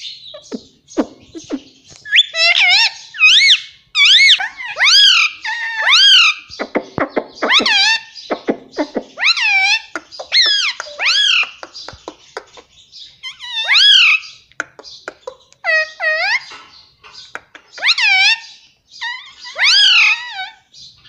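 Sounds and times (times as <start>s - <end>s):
parrot calling: 0.0s - 20.7s
parrot clicking: 14.5s - 15.6s.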